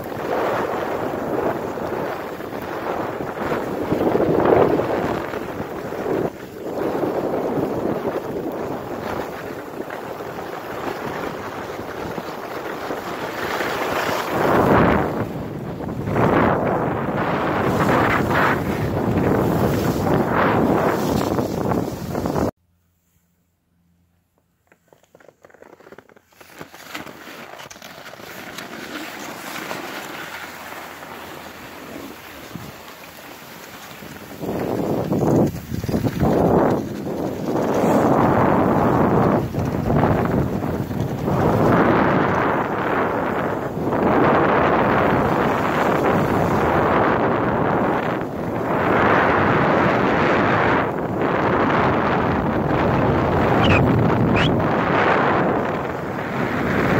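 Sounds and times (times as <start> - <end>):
skis sliding over packed snow: 0.0 - 22.5, 24.6 - 56.9
wind rushing over microphone: 0.0 - 22.6, 28.9 - 56.9
skis hissing on snow: 17.5 - 22.5, 28.2 - 35.0.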